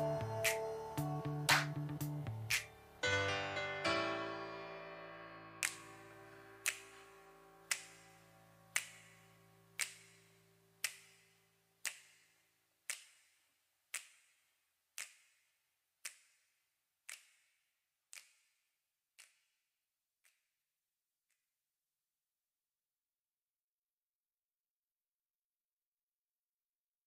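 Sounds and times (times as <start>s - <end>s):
held keyboard chord: 0.0s - 8.8s
sharp snap-like clicks: 2.5s - 2.8s, 5.6s - 5.9s, 7.7s - 9.2s, 9.8s - 11.2s.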